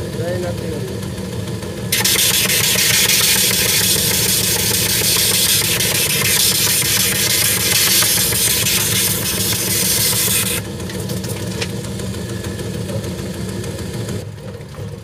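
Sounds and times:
machine motor hum: 0:00.7 - 0:14.2
sole grinding on abrasive wheel: 0:01.9 - 0:10.7.

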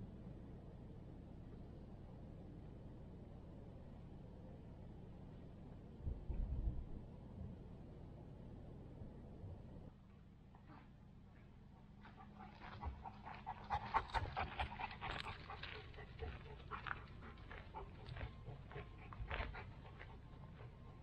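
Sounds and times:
dog panting: 0:12.0 - 0:21.0
footsteps on gravel: 0:14.4 - 0:20.7.

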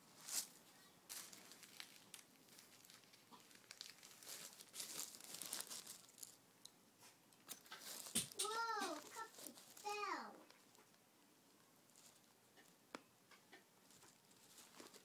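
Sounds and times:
rustling of toys: 0:00.0 - 0:06.4, 0:07.0 - 0:12.8, 0:13.5 - 0:15.0
light clicks of toys: 0:07.4 - 0:09.6.

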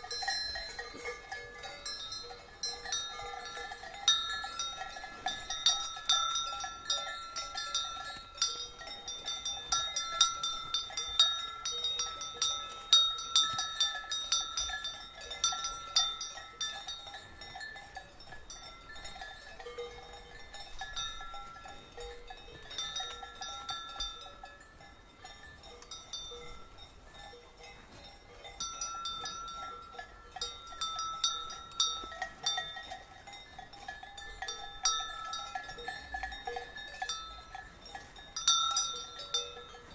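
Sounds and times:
cow bells clanking: 0:00.0 - 0:39.9.

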